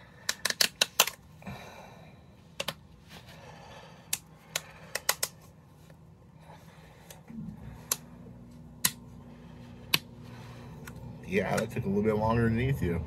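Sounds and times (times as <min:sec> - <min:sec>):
plastic lid clicking and cracking: 0:00.3 - 0:01.2.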